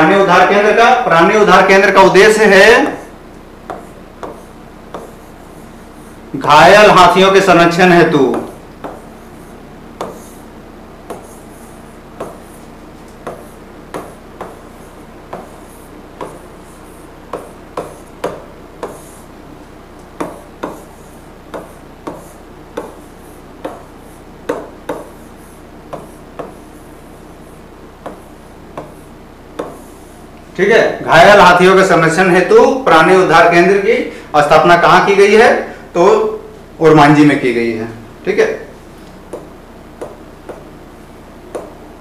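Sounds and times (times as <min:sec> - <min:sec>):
pen tapping on writing board: 0:03.7 - 0:05.3, 0:08.3 - 0:09.1, 0:10.0 - 0:10.4, 0:11.1 - 0:16.4, 0:17.3 - 0:19.2, 0:20.1 - 0:23.9, 0:24.5 - 0:25.3, 0:25.9 - 0:26.7, 0:28.0 - 0:29.0, 0:29.6 - 0:29.9, 0:39.3 - 0:40.7, 0:41.5 - 0:41.8
faint pen scratching: 0:03.7 - 0:06.2, 0:08.3 - 0:10.5, 0:11.1 - 0:19.3, 0:20.2 - 0:30.2.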